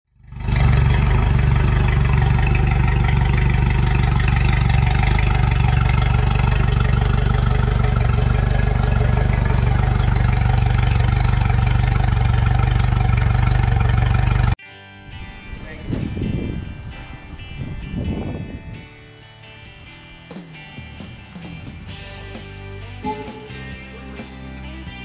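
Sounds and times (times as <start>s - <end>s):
outboard motor idling: 0.1s - 14.6s.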